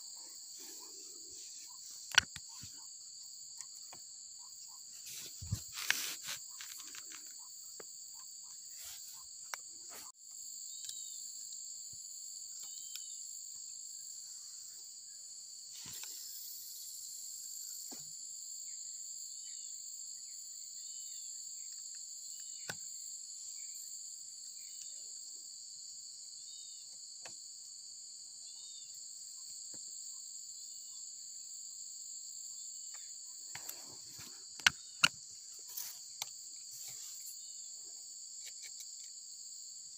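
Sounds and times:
insects shrilling: 0.0 - 10.1.

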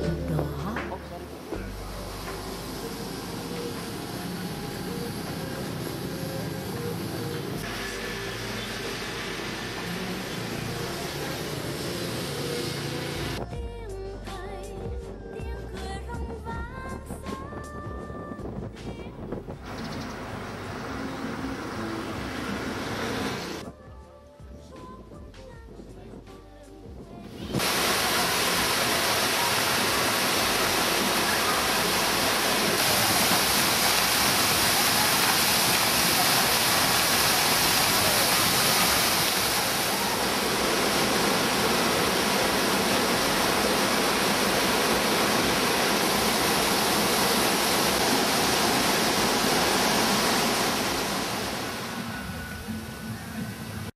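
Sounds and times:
waterfall rushing: 0.0 - 13.4, 19.6 - 23.6, 27.4 - 53.9.

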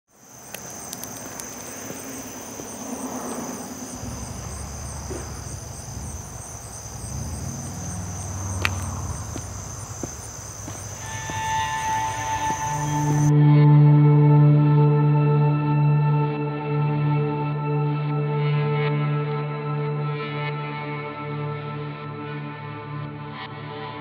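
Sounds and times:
crickets trilling: 0.1 - 13.3
low rumble: 2.9 - 13.3.

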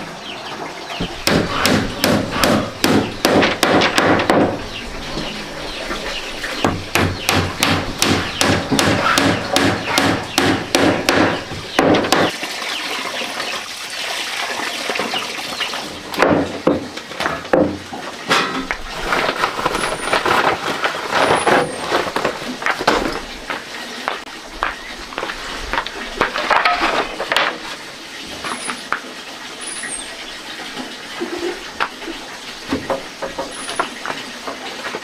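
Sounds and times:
hammer blows on wood: 6.6 - 12.3.

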